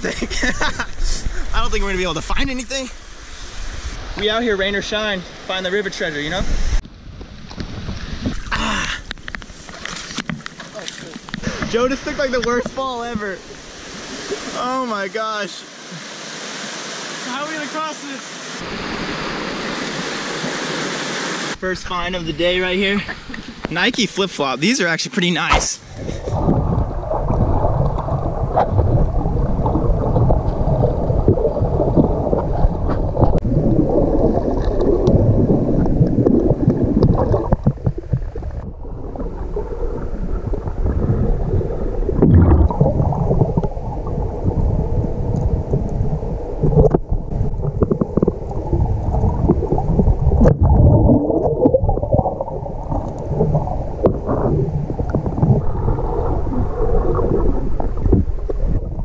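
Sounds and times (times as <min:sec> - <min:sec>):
underwater rumble of moving water: 0:25.8 - 0:59.0.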